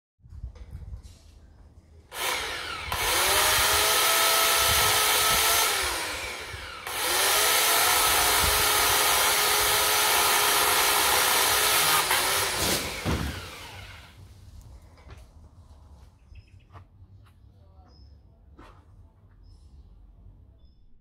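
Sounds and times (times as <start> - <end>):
electric chainsaw cutting branch: 2.1 - 14.2.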